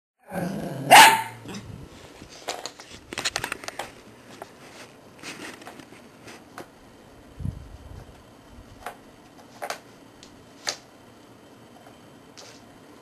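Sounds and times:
puppy barking: 0:00.9 - 0:01.6.

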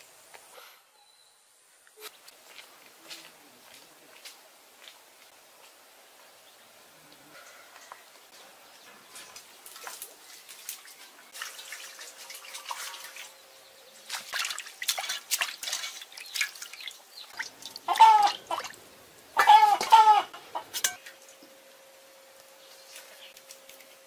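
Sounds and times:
water splashing and dripping: 0:09.3 - 0:19.9
chicken clucking: 0:19.4 - 0:20.8.

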